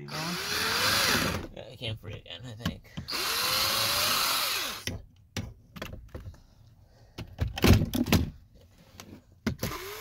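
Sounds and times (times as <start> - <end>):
cordless drill motor whine: 0.1 - 1.4, 3.1 - 4.9, 9.6 - 10.0.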